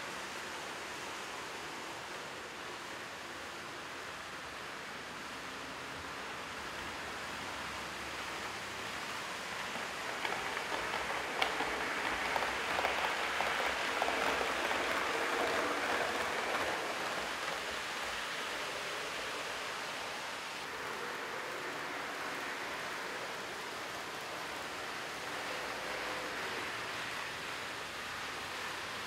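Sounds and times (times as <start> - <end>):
model train wheels rattling: 9.6 - 19.4.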